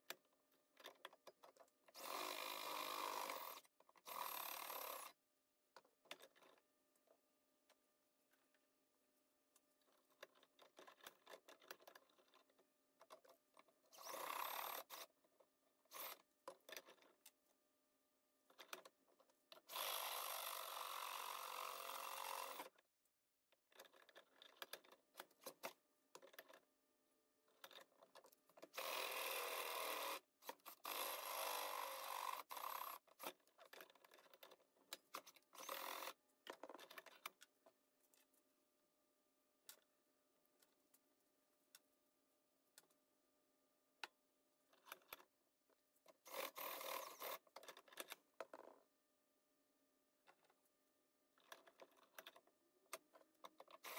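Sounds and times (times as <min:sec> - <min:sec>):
small clicks and knocks: 0:05.7 - 0:07.8, 0:09.6 - 0:13.8, 0:16.4 - 0:17.5, 0:18.5 - 0:19.7, 0:23.6 - 0:26.7, 0:27.5 - 0:28.8, 0:33.0 - 0:38.4, 0:44.0 - 0:46.6, 0:47.2 - 0:48.9, 0:51.4 - 0:53.9.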